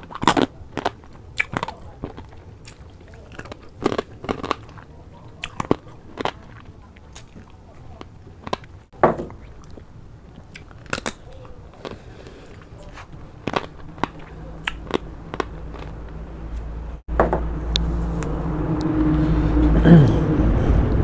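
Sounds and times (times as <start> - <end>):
chewing and lip-smacking: 0.0 - 16.2
low motor hum: 12.6 - 21.0.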